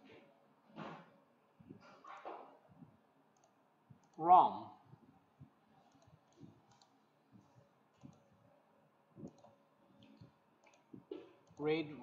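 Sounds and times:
computer mouse clicks: 3.3 - 4.2, 5.9 - 7.0, 7.9 - 8.3, 9.2 - 11.7.

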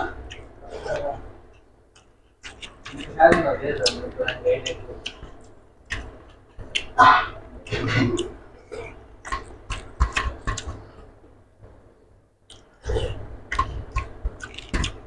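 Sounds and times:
chewing: 2.0 - 3.2, 7.6 - 11.0, 12.5 - 15.0.

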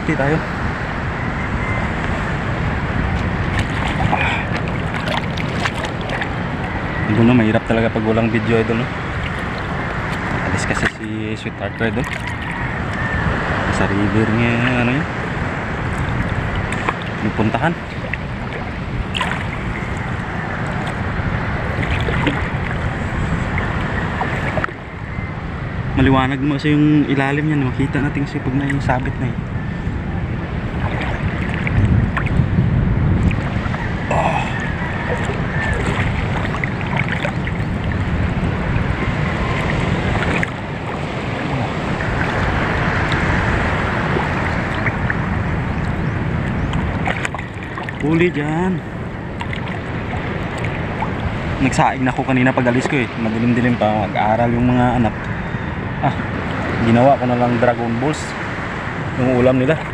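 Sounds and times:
wind on microphone: 0.0 - 59.9
sea water sloshing: 0.4 - 25.9, 27.4 - 59.9
water splash: 3.1 - 6.7, 15.8 - 24.8, 30.6 - 32.5, 33.1 - 48.3, 49.2 - 51.7.

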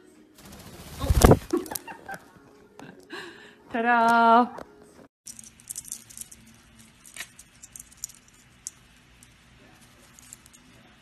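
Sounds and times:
ball toy rattling and clicking: 5.3 - 11.0.

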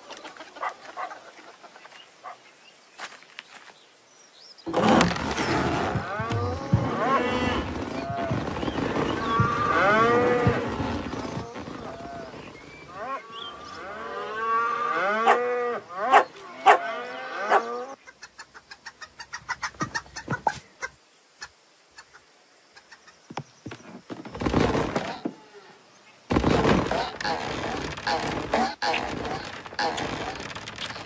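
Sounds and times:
cartoon cows mooing: 5.6 - 18.0.

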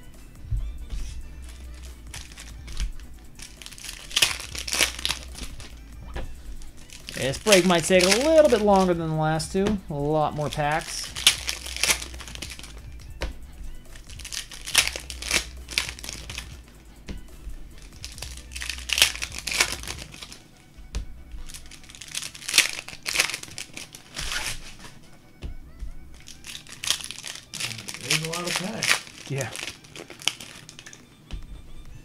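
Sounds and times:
faint music: 0.0 - 32.0
foil wrappers crinkling and tearing: 1.0 - 5.8, 6.4 - 12.9, 13.9 - 16.6, 17.7 - 20.5, 21.4 - 25.0, 26.2 - 31.0.

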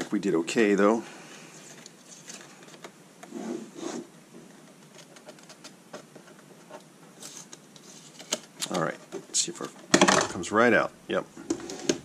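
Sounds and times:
plastic panels rustling and clicking: 4.4 - 10.5.

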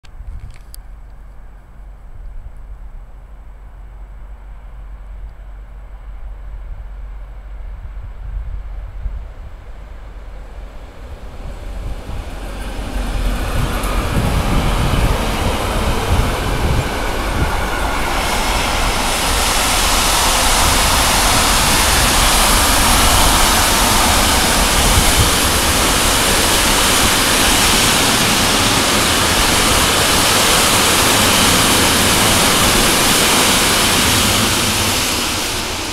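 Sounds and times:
freight train passing: 0.5 - 35.9.

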